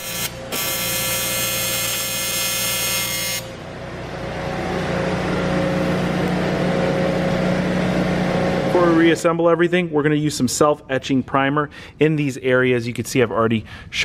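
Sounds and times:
welding arc buzzing: 0:00.0 - 0:03.7
steady mechanical hum: 0:00.0 - 0:14.0.

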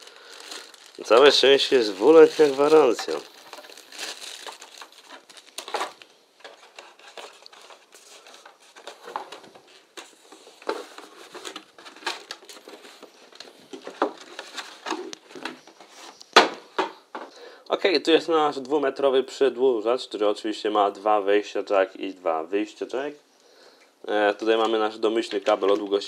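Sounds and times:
plastic packaging rustling: 0:00.0 - 0:16.3.

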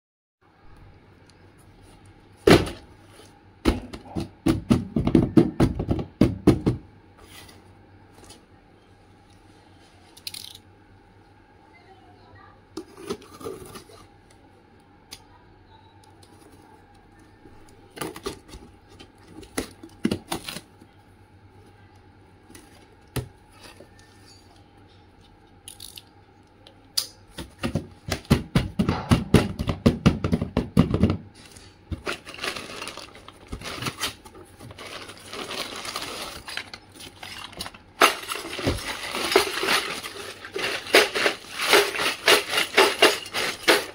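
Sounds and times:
plastic wrapping crinkling: 0:31.4 - 0:43.9.

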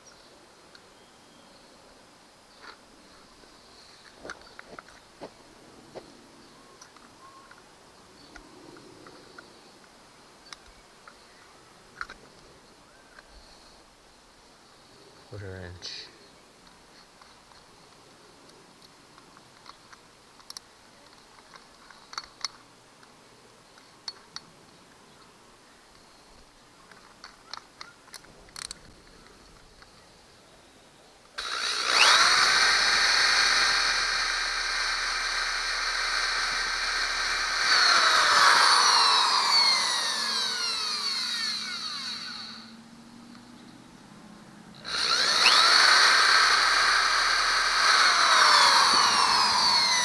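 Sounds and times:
drill chuck clicking: 0:31.4 - 0:42.6, 0:44.8 - 0:50.0
electric drill whining: 0:31.4 - 0:42.8, 0:44.8 - 0:50.0.

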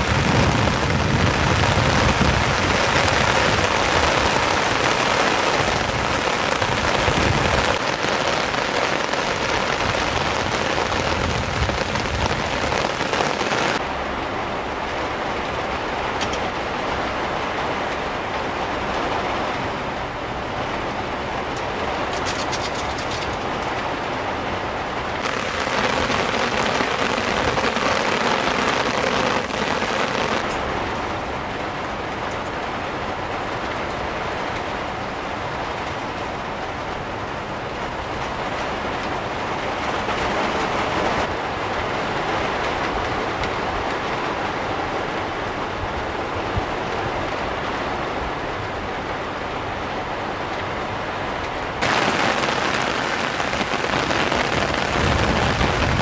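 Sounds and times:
heavy rain on car body: 0:00.0 - 0:50.6, 0:51.3 - 0:56.0.

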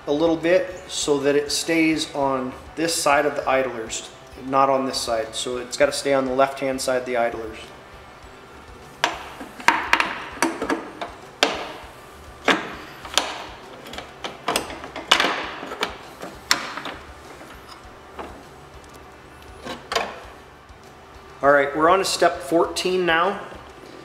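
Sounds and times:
metal knocks and clanks: 0:09.0 - 0:18.5.

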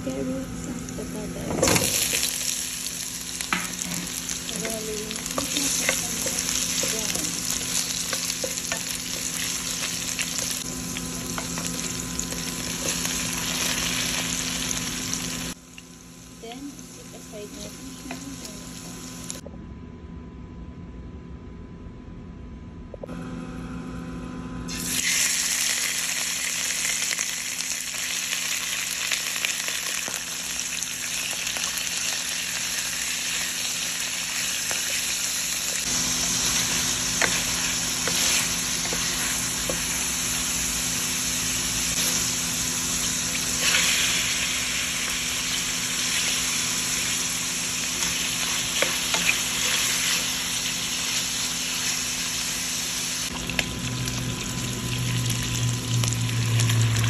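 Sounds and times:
meat sizzling in hot oil: 0:01.6 - 0:19.4, 0:24.7 - 0:57.0.

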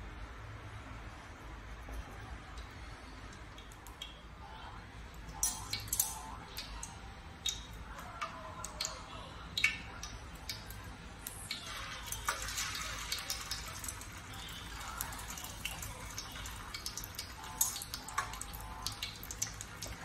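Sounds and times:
hot oil sizzling: 0:10.4 - 0:20.0.

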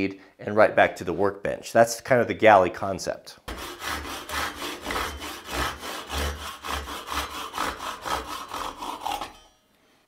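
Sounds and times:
hand saw cutting wood: 0:03.5 - 0:09.6.

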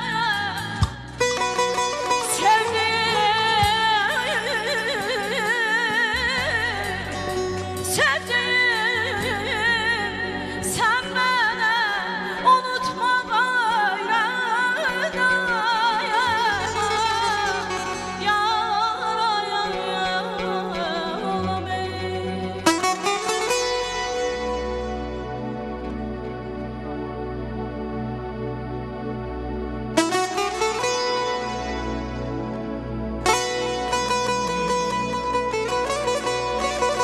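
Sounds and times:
instrumental accompaniment: 0:00.0 - 0:13.4, 0:14.0 - 0:37.0
woman singing into a microphone: 0:00.0 - 0:24.0.

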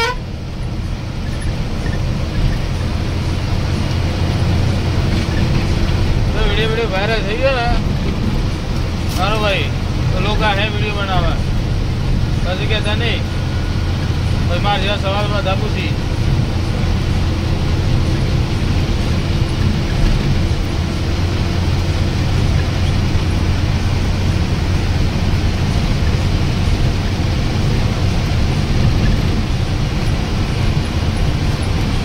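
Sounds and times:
bus engine droning: 0:00.0 - 0:32.0
road and wind noise: 0:00.0 - 0:32.0.

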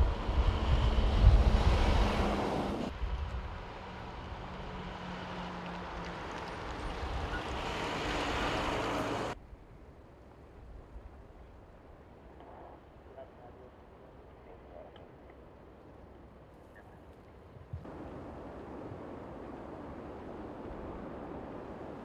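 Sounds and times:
fire engine passing with rumble: 0:00.0 - 0:09.4
vehicle approaching with engine hum: 0:00.0 - 0:09.4.

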